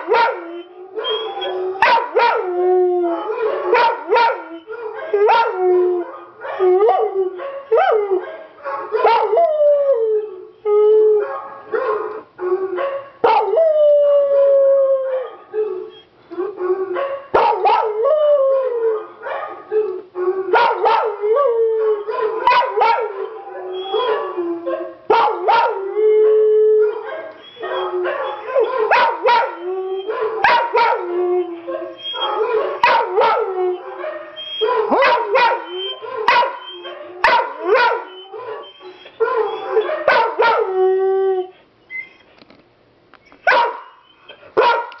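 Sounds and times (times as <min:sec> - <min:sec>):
dog barking and yipping: 0:00.0 - 0:02.4, 0:03.4 - 0:09.4, 0:12.8 - 0:13.6, 0:17.0 - 0:18.0, 0:20.5 - 0:21.2, 0:21.8 - 0:25.8, 0:26.8 - 0:31.1, 0:31.7 - 0:40.7, 0:43.4 - 0:45.0
dog howling: 0:00.0 - 0:41.6.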